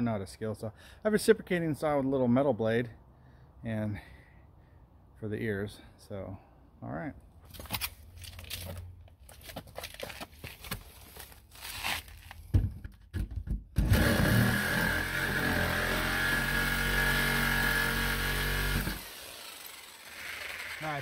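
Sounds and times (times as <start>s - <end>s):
knocks and handling sounds: 7.4s - 13.8s
jigsaw cutting wood: 13.8s - 21.0s.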